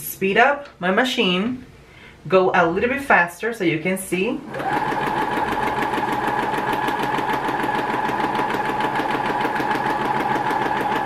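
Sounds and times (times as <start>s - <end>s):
sewing machine motor whine: 4.4s - 11.0s.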